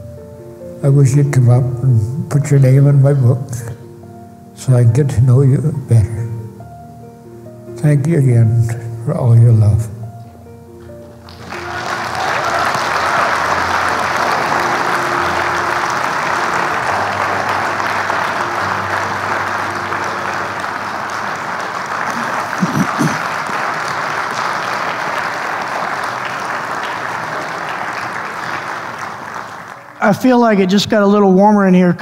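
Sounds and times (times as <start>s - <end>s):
congregation applauding: 11.0s - 30.9s.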